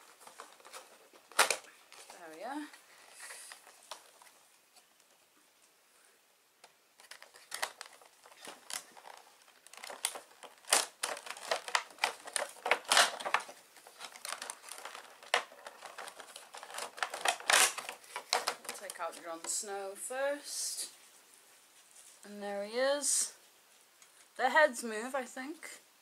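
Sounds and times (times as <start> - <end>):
plastic packaging crinkling: 0.0 - 4.8, 7.0 - 19.6.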